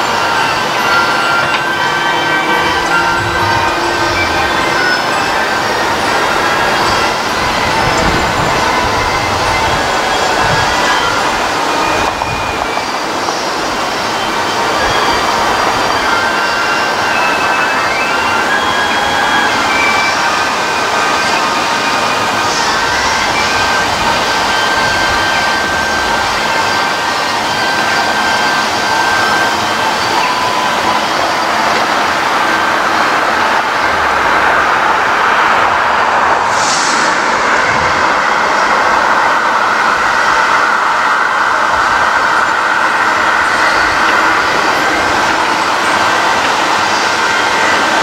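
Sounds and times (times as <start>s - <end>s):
diesel locomotive engine running: 0.0s - 48.0s
brief high hiss: 36.4s - 39.0s.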